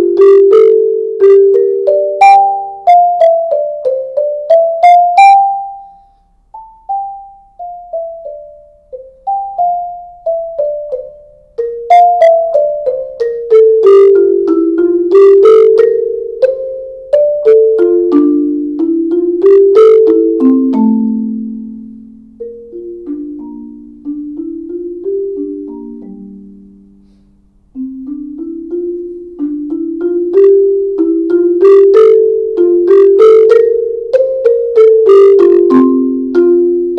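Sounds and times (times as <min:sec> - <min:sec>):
marimba played with soft mallets: 0:00.0 - 0:36.9.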